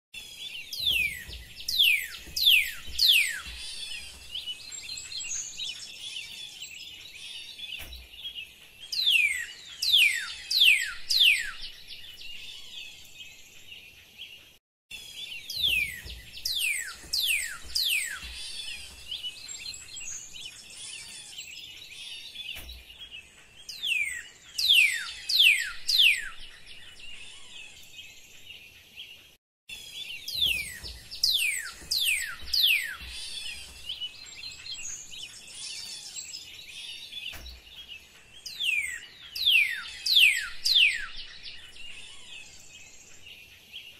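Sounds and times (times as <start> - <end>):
chorus of bird chirps: 0.2 - 43.9.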